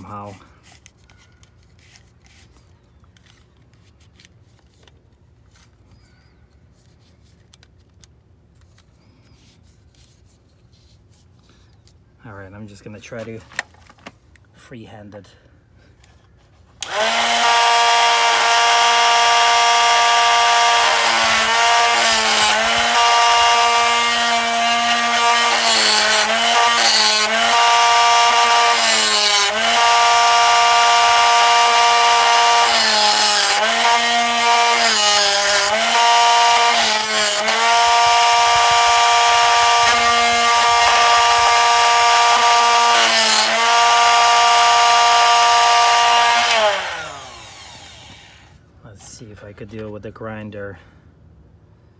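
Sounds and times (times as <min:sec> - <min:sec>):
drill bit grinding on wheel: 0:16.8 - 0:48.5
electric grinder motor humming: 0:16.8 - 0:48.5.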